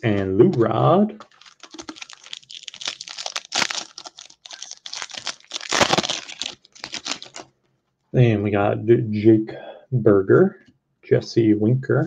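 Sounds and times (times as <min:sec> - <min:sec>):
foil wrapper tearing and crinkling: 0:01.2 - 0:07.5.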